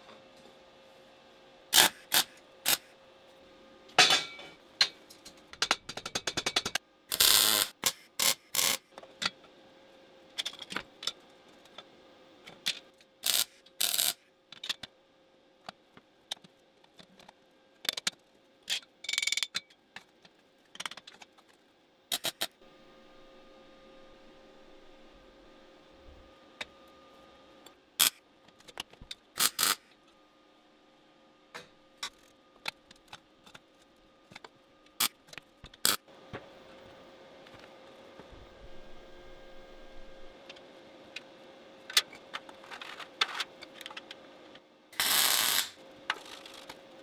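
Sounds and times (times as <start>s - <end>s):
faint steady hum: 0.0s - 47.0s
tools clicking and knocking on metal: 4.0s - 6.8s.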